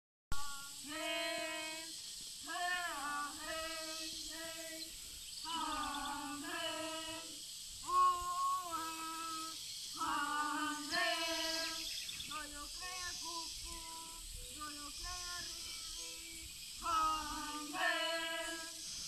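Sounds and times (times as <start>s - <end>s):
children singing a chant: 0.4s - 19.0s.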